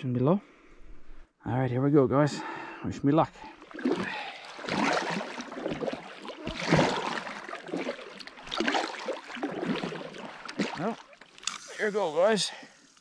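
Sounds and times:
water splashing and dripping: 3.4 - 13.0
kayak paddle strokes in water: 3.5 - 12.2.

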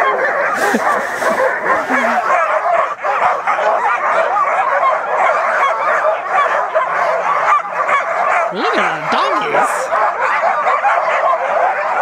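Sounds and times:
sled dogs barking and yelping: 0.0 - 12.0.

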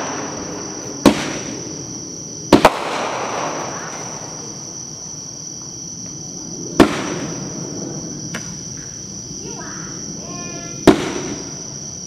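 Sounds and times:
firework bang: 0.0 - 4.8, 6.6 - 11.8
insects droning: 0.0 - 12.0.

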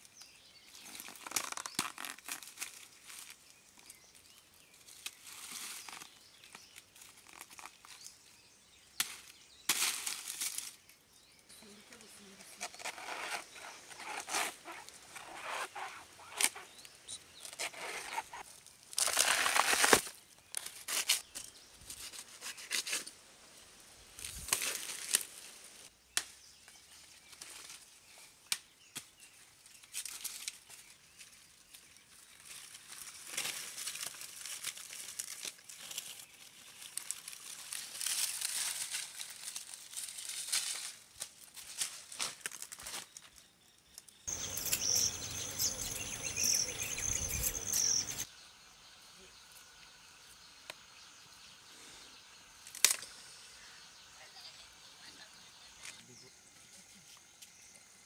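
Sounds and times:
footsteps crunching on dry leaves: 0.7 - 8.2, 9.2 - 10.8, 12.7 - 23.0, 29.8 - 43.4
dry leaves rustling and tearing: 0.7 - 8.3, 9.0 - 11.0, 11.8 - 23.1, 24.2 - 25.8, 27.1 - 43.5, 52.7 - 53.1.

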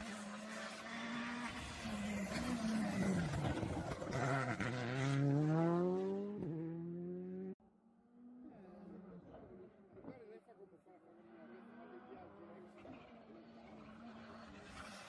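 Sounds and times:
rally car engine accelerating: 0.0 - 9.7.

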